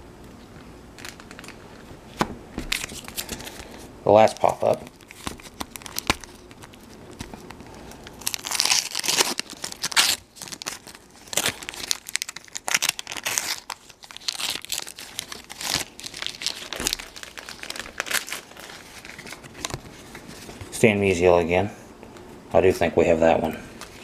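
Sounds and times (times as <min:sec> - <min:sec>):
paper crinkling: 0:02.6 - 0:20.8
wax paper wrapper tearing: 0:02.7 - 0:20.2.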